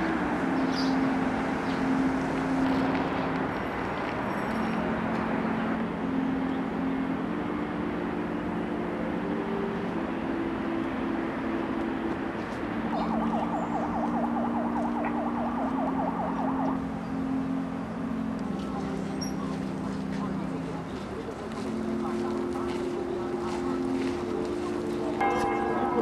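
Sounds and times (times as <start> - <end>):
city din with low hum: 0.0 - 26.0
warbling emergency siren: 12.8 - 17.5.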